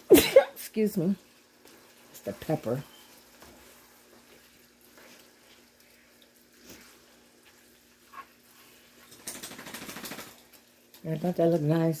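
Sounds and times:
spoon scraping skillet: 0.8 - 9.2.

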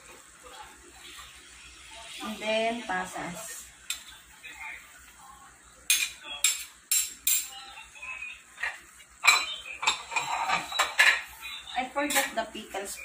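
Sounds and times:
utensils and dishes clattering: 5.9 - 7.7, 8.5 - 13.0.

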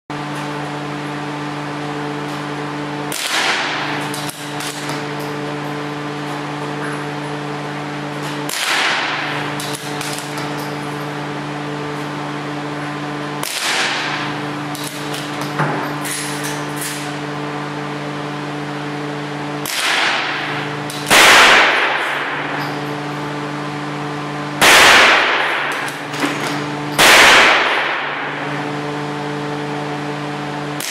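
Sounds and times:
steady hum: 0.1 - 30.9
rifle shots with echo: 21.1 - 22.6, 24.6 - 26.0, 27.0 - 28.4.

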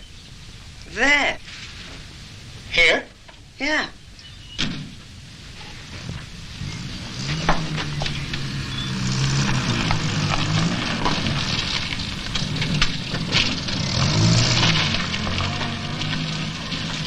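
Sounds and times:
vehicle engine droning: 5.2 - 17.0
small clicks and crackles: 7.3 - 17.0.

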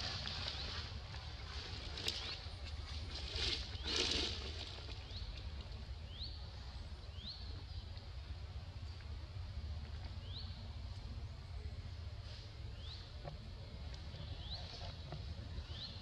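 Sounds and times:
low background rumble: 0.0 - 16.0
bird chirping: 14.1 - 16.0.

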